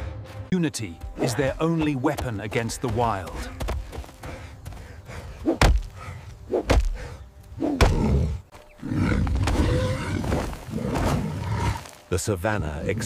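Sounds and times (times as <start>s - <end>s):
heavy thuds: 1.8s - 7.1s.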